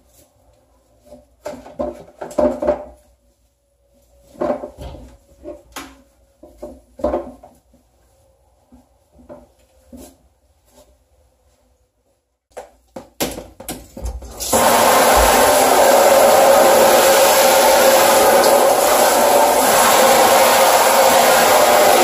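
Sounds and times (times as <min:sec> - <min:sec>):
shower water spraying: 0:14.3 - 0:22.0.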